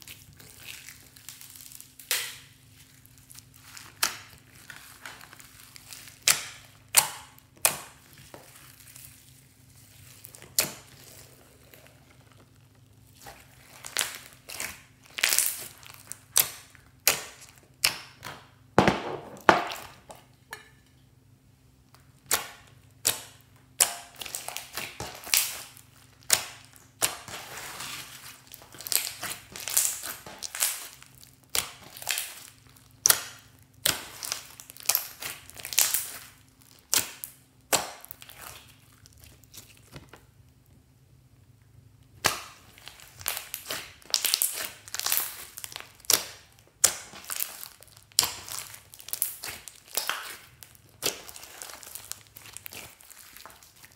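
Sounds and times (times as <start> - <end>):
sticky pops and crackles: 42.0 - 53.9.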